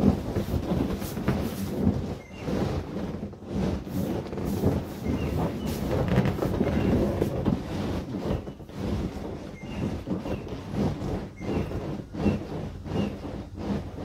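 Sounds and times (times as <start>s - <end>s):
inflatable vinyl creaking and rubbing: 0.0s - 14.0s
faint squeaks: 1.5s - 3.0s, 4.5s - 13.6s.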